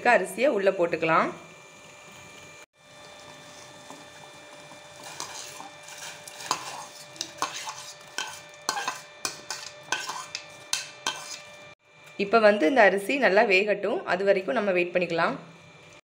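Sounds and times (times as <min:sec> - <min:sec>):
spoon scraping a plate: 0:05.0 - 0:11.7.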